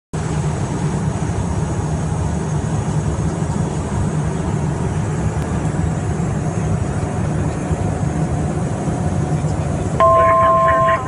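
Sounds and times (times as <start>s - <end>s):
jet cockpit rumble: 0.2s - 11.0s
faint high whine: 10.0s - 11.0s.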